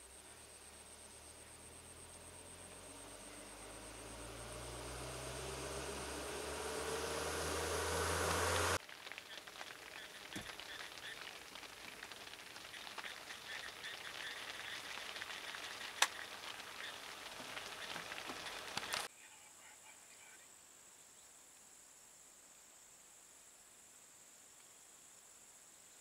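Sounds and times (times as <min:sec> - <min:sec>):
crackling outdoor hiss: 0:00.0 - 0:26.0
high buzz: 0:01.7 - 0:08.8.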